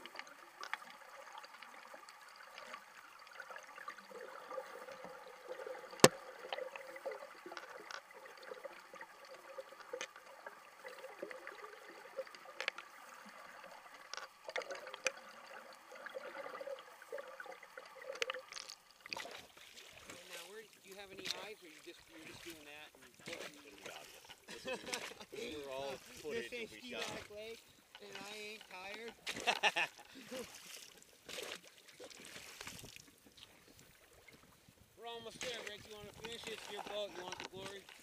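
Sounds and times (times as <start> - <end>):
small clicks and ticks: 0.0 - 19.6, 27.8 - 30.0, 35.3 - 38.0
water rushing underwater: 0.0 - 24.4.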